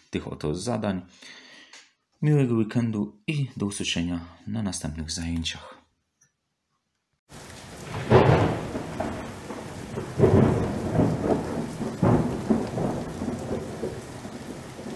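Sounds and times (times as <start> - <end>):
rain falling steadily: 7.3 - 14.9
thunder rolling: 7.3 - 14.9.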